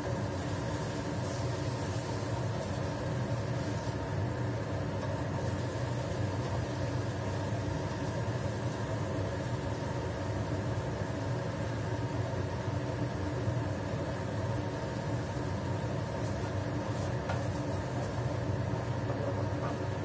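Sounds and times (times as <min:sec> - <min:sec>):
exhaust fan humming: 0:00.0 - 0:20.0.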